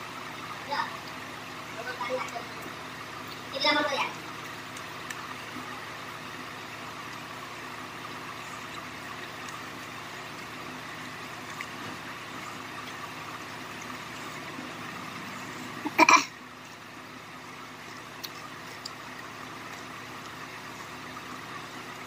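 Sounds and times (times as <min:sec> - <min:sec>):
steady background hum: 0:00.0 - 0:22.0
woman coughing: 0:15.9 - 0:16.3.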